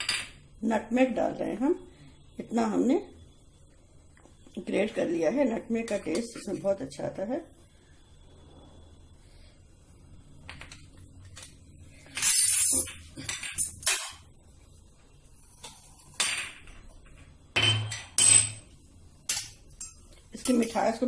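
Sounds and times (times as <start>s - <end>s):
kitchen utensils clinking: 12.1s - 14.2s, 17.6s - 18.6s, 19.3s - 21.0s.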